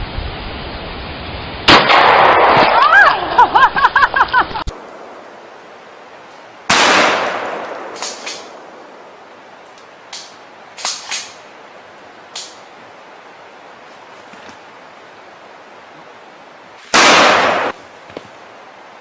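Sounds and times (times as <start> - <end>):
gunshot: 1.7 - 2.9, 6.7 - 8.6, 16.9 - 17.8.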